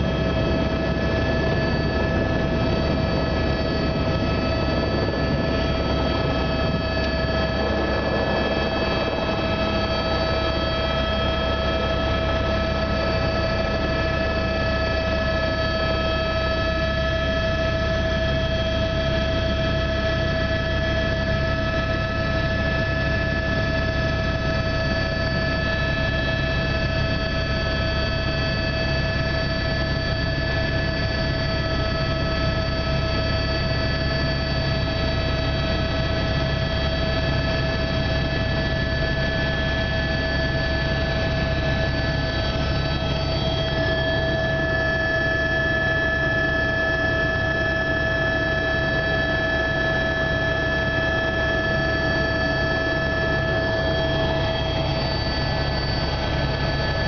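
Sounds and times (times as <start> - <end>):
helicopter engine whine: 0.0 - 57.0
low rotor drone: 0.0 - 57.0.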